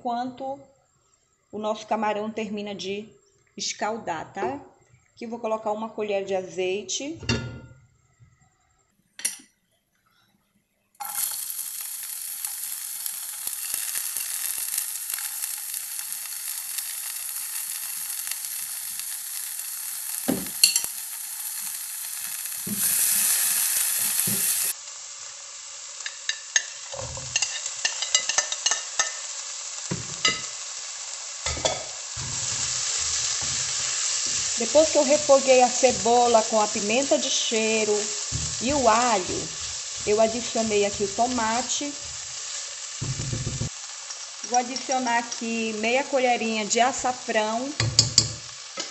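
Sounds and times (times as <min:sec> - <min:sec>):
vegetables sizzling in oil: 0:11.0 - 0:48.9
spoon scraping pan: 0:20.4 - 0:21.0, 0:31.4 - 0:43.7.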